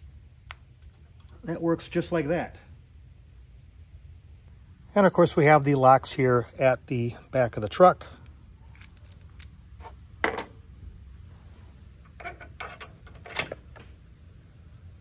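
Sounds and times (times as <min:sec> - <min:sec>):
metal lock pin clicks: 0:12.2 - 0:13.8.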